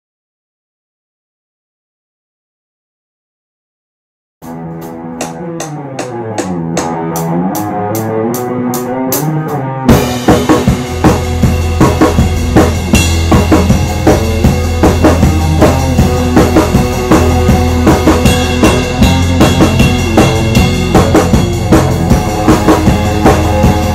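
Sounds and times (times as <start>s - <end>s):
lead guitar bending notes: 4.4s - 23.9s
rock band playing: 4.4s - 23.9s.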